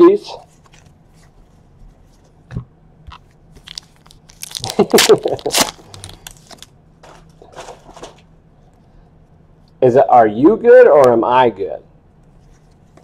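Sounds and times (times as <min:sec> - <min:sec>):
foil wrapper crinkling and tearing: 0:03.6 - 0:06.7.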